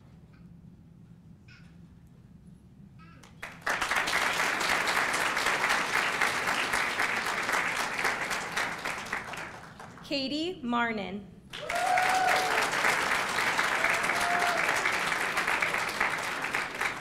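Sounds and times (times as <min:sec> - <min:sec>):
low room hum: 0:00.0 - 0:17.0
audience applauding: 0:03.3 - 0:10.0, 0:11.5 - 0:17.0.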